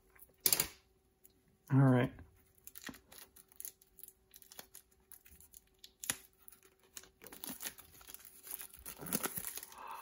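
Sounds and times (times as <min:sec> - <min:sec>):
plastic wrap crinkling: 0:02.4 - 0:10.0.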